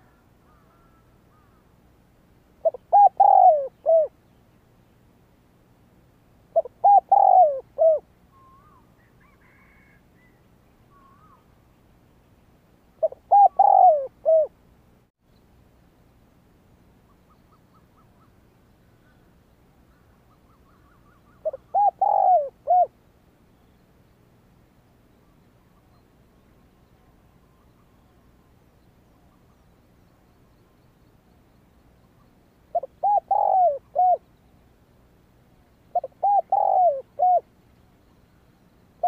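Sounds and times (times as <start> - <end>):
dove cooing: 2.6 - 4.2, 6.5 - 11.5, 13.0 - 14.6, 20.4 - 23.0, 32.7 - 34.3, 35.9 - 37.5
birds chirping: 2.6 - 5.0, 25.0 - 39.0.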